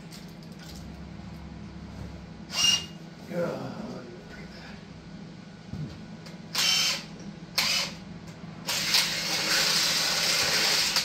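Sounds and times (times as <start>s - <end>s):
power drill drilling metal: 6.6s - 8.0s, 8.6s - 11.0s.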